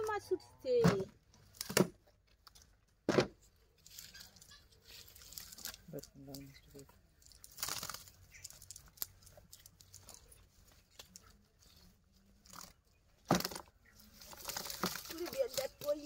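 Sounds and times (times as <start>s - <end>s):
loud thump: 3.1s - 3.4s
net rustling and crackling: 3.8s - 6.4s, 7.1s - 16.0s.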